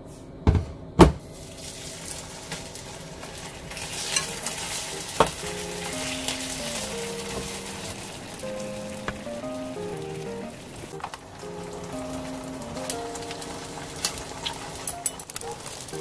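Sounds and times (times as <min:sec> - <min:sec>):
meat sizzling in a frying pan: 0:01.4 - 0:16.0
metal tongs clicking on pan: 0:04.1 - 0:04.5, 0:12.8 - 0:15.5.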